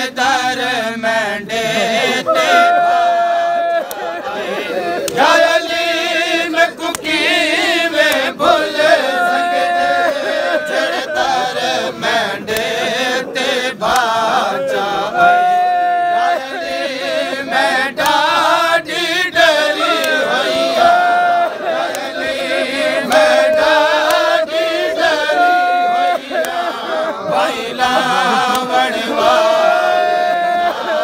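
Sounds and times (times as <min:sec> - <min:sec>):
man singing lament: 0:00.0 - 0:17.7, 0:25.0 - 0:31.0
men's voices chanting: 0:00.0 - 0:31.0.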